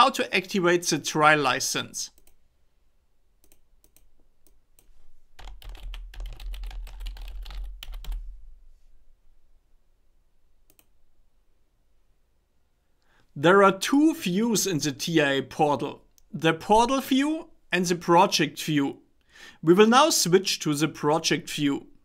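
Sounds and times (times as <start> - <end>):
typing on computer keyboard: 5.4 - 8.2.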